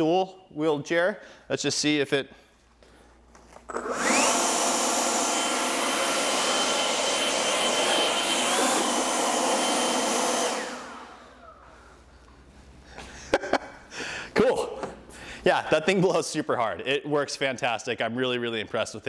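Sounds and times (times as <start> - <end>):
leaf blower whine and air rush: 3.7 - 12.0.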